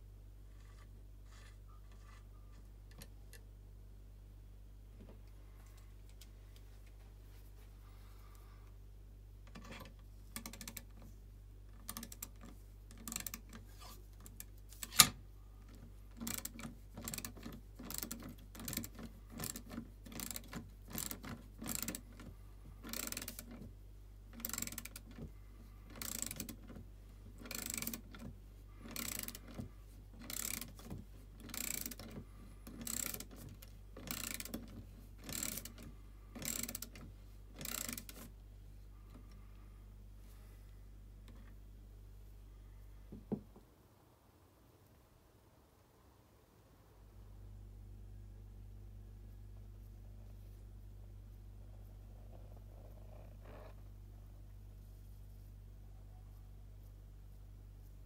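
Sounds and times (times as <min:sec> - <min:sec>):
ratchet wrench clicking: 0:11.8 - 0:13.6, 0:16.2 - 0:22.2, 0:22.8 - 0:23.5, 0:24.4 - 0:25.2, 0:25.9 - 0:26.6, 0:27.4 - 0:28.2, 0:28.8 - 0:29.6, 0:30.2 - 0:30.8, 0:31.4 - 0:37.0, 0:37.6 - 0:38.3.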